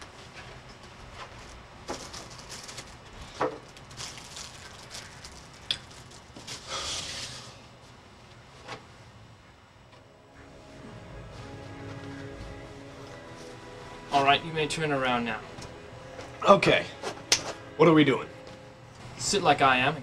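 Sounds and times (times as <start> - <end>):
paper rustling: 0.2 - 6.9.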